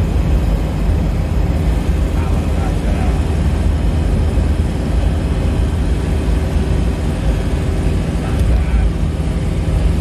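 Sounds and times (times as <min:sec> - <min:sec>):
engine tyre and wind rumble: 0:00.0 - 0:10.0.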